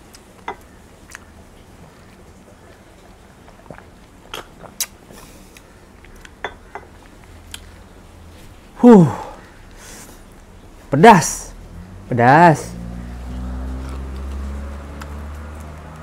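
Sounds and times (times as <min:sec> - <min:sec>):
chewing with soft pops: 0:00.0 - 0:06.4
low steady background noise: 0:00.0 - 0:16.0.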